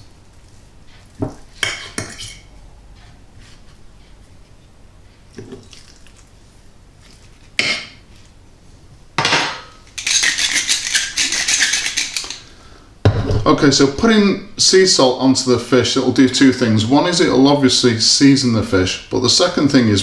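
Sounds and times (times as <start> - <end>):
fork scraping ceramic plate: 10.0 - 12.4
salt mill grinding: 10.0 - 12.4.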